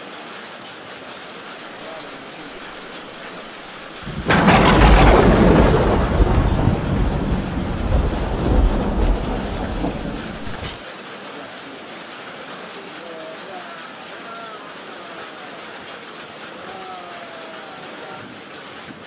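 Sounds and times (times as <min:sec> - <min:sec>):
heavy rain: 0:00.0 - 0:19.0
thunderclap: 0:01.8 - 0:10.8
low rumble of thunder: 0:03.9 - 0:10.8.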